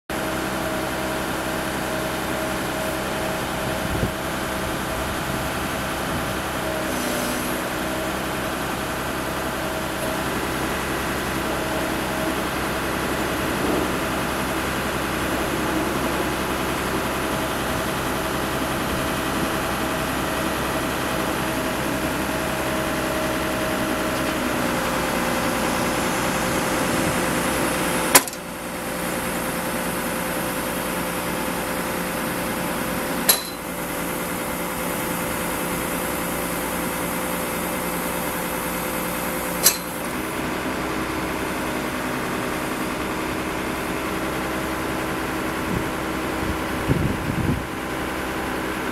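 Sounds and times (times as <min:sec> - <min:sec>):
hydraulic crane engine and pump: 0:00.1 - 0:48.9.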